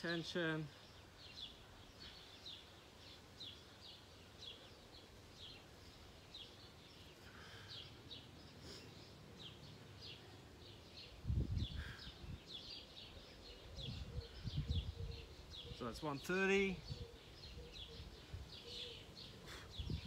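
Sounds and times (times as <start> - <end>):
faint outdoor hiss: 0.0 - 20.0
songbird chirping: 0.0 - 20.0.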